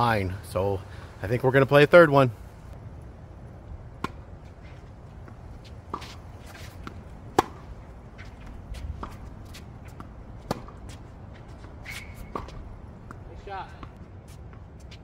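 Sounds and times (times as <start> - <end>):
tennis ball bouncing: 3.9 - 15.0
tennis ball struck by rackets: 4.0 - 4.3, 5.2 - 14.0.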